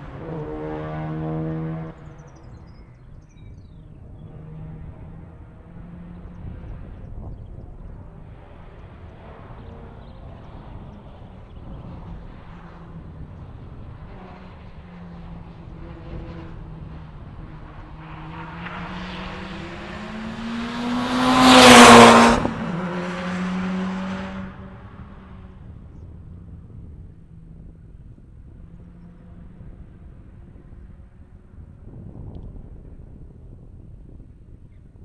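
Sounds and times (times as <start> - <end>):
rally car passing at speed: 0.0 - 2.7, 3.8 - 32.0.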